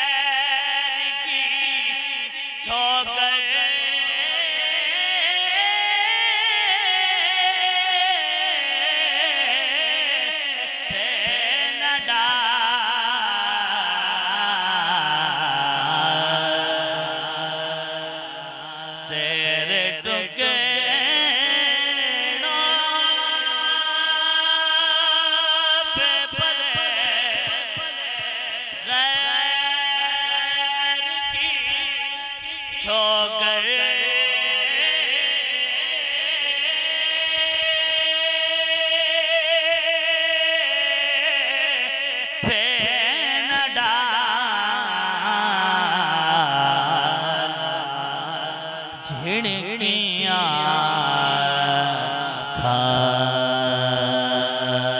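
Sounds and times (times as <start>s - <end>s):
man singing through microphone: 0.0s - 54.9s.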